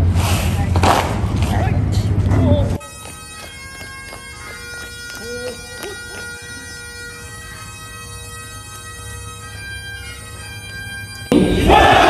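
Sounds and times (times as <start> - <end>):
bagpipes playing a tune: 2.7 - 12.0
crowd shouting together: 11.4 - 12.0.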